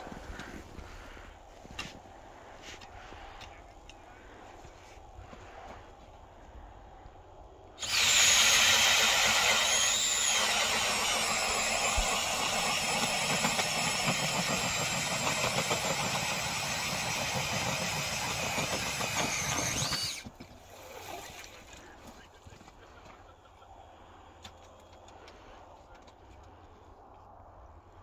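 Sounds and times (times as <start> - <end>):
cordless drill boring through ice: 7.8 - 21.1.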